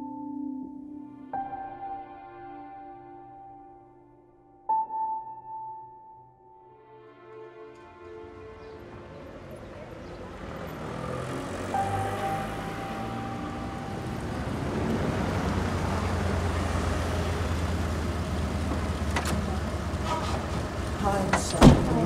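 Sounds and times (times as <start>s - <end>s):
car approaching: 7.8s - 22.0s
car engine idling: 8.8s - 22.0s.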